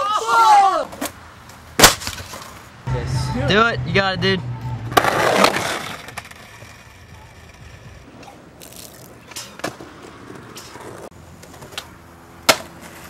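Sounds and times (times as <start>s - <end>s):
skateboard clacking on ground: 4.9s - 13.0s.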